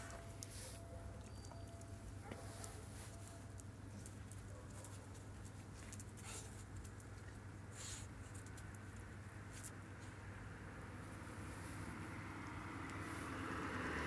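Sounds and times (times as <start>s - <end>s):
dogs sniffing: 0.0s - 8.7s.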